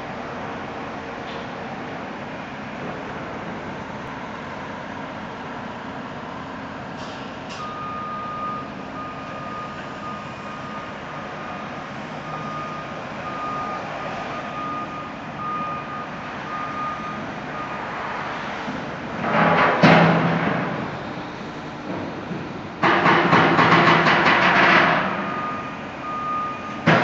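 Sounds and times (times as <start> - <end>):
rumble of yard machinery: 0.0 - 27.0
reversing alarm beeping: 7.5 - 17.9, 24.5 - 27.0.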